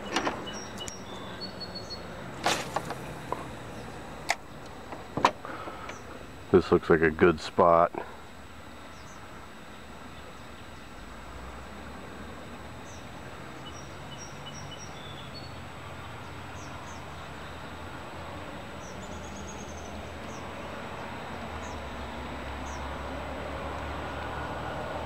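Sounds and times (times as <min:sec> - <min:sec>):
bird trill: 0:00.0 - 0:02.1, 0:12.8 - 0:17.1
songbirds chirping: 0:00.0 - 0:24.3.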